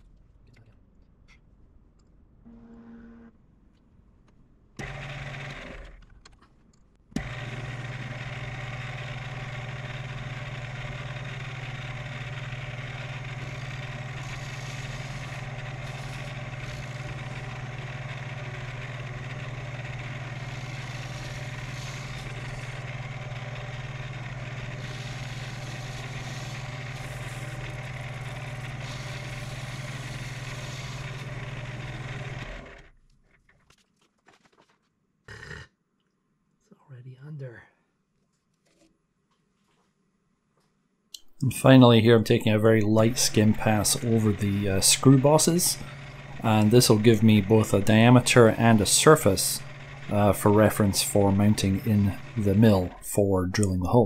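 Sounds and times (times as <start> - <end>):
lathe motor humming: 4.8 - 5.9, 7.2 - 32.9, 41.6 - 54.0.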